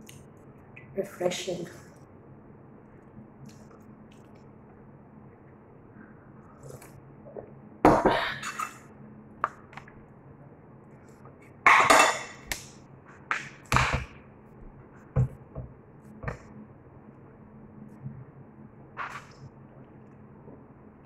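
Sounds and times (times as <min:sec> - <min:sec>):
cutlery clinking on a ceramic plate: 0:11.7 - 0:12.4.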